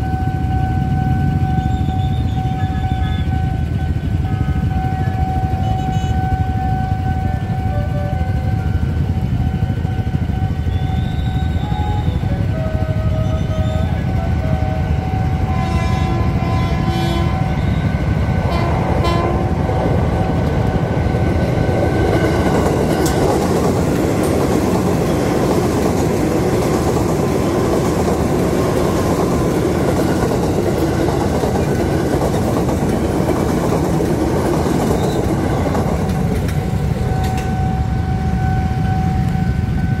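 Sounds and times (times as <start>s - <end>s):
train wheels rumbling on rails: 0.0s - 40.0s
wheels clacking over rail joints: 18.3s - 37.8s.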